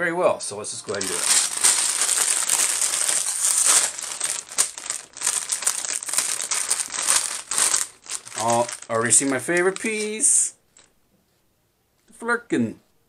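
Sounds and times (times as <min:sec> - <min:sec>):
plastic bag crinkling: 0:00.8 - 0:10.9.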